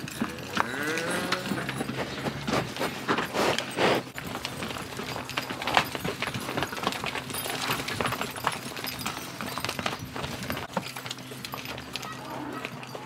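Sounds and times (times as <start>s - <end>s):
cow hoof steps: 0.0s - 13.0s.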